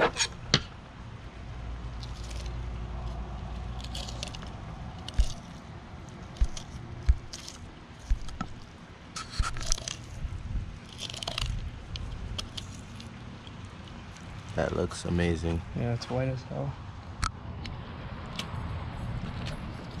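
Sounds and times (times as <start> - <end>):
knife cutting through fish bones: 3.8 - 5.6, 6.3 - 10.0.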